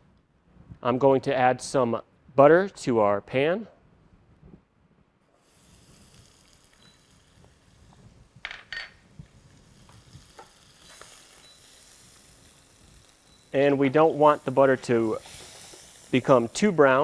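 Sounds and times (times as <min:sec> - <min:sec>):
butter sizzling in a skillet: 0:05.4 - 0:17.0.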